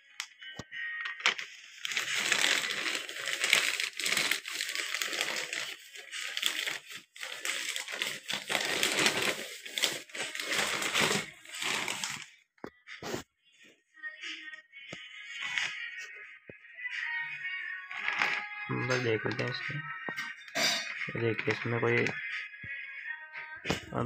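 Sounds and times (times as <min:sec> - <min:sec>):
plastic bag crinkling and tearing: 0:01.0 - 0:12.4, 0:17.9 - 0:19.6.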